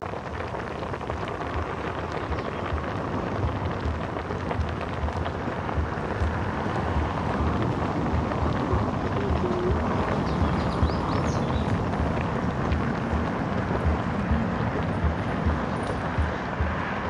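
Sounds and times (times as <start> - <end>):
broth boiling and bubbling: 0.0 - 17.0
low rumble: 0.0 - 17.0.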